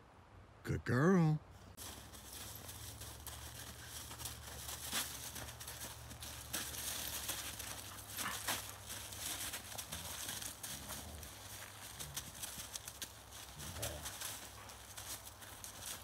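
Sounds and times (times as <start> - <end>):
dogs crunching in snow and leaves: 1.8 - 16.0.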